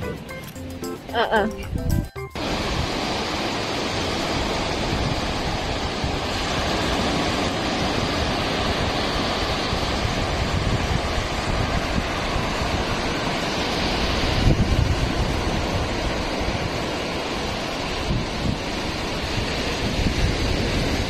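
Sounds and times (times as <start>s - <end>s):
wind on microphone: 1.6s - 21.0s
waves breaking on a beach: 2.4s - 21.0s.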